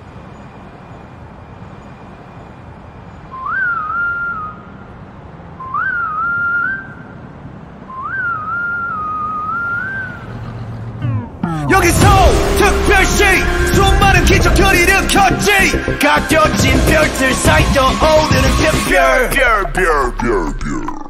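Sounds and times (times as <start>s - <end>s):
whistled tune: 3.2s - 4.8s, 5.6s - 7.1s, 7.9s - 10.2s
steady low rumble: 11.2s - 21.0s.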